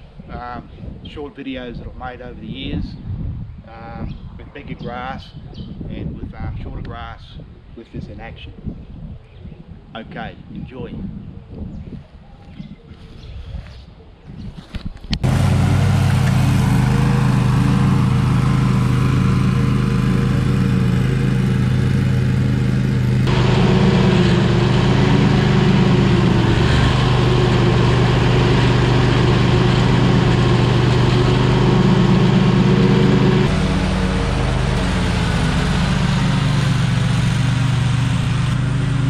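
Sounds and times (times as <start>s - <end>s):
ride-on mower cutting grass: 15.2s - 39.0s.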